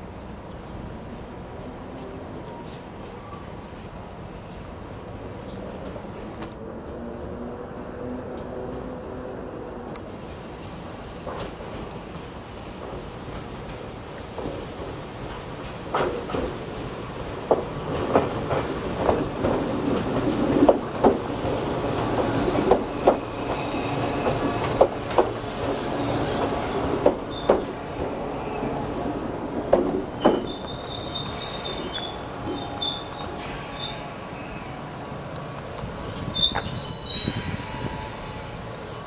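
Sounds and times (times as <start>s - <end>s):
train wheels knocking on rail joints: 12.7s - 16.6s, 17.4s - 25.8s, 26.8s - 28.1s, 29.7s - 30.5s
train brakes squealing: 26.0s - 29.2s, 30.2s - 35.0s, 36.1s - 39.0s.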